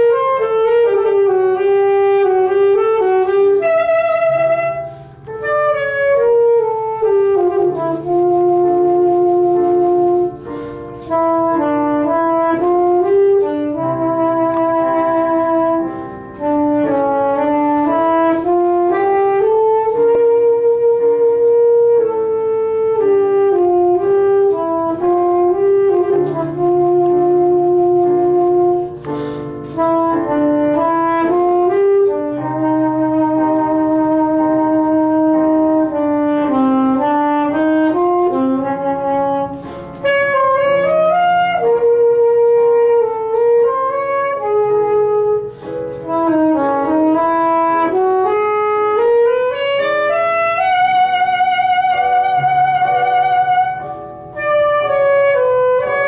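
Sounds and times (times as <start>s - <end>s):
alto saxophone melody: 0.0s - 56.0s
piano accompaniment: 0.0s - 56.0s.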